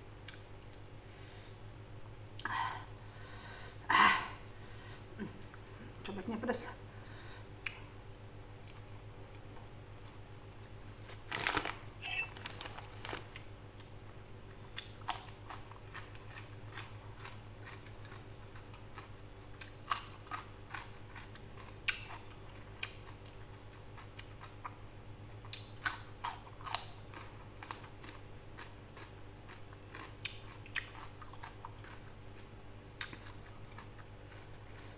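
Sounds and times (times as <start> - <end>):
steady low hum: 0.0 - 34.9
person chewing: 8.6 - 10.2, 13.1 - 24.8, 25.5 - 34.9.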